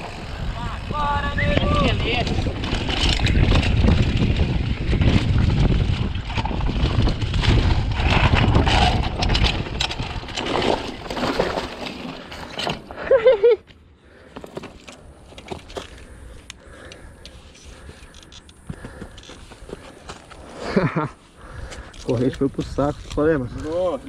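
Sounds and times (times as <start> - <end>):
wind rumbling on microphone: 0.0 - 11.6
bike rattling over rocks: 0.0 - 13.1, 14.2 - 16.8, 17.7 - 20.6.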